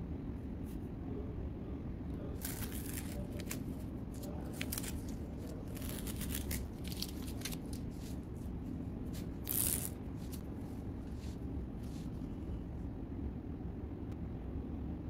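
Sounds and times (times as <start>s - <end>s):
steady low hum: 0.0s - 15.0s
masking tape peeling and rustling: 2.4s - 12.2s.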